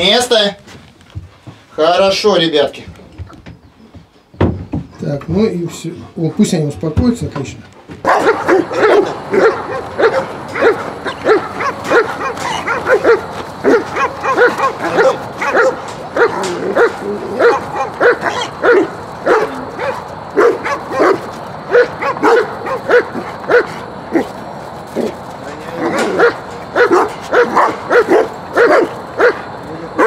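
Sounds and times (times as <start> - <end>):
dog barking: 8.0 - 24.4, 25.8 - 30.0.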